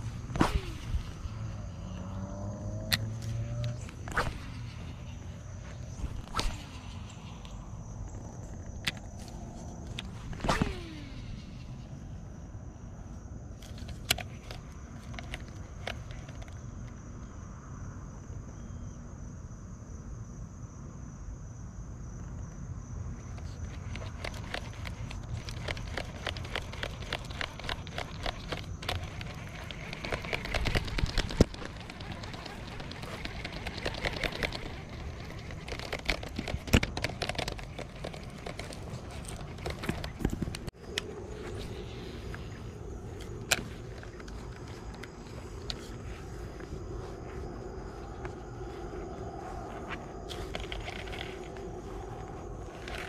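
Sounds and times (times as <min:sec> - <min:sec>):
high insect drone: 0:00.0 - 0:53.0
fishing reel clicks: 0:23.9 - 0:40.2.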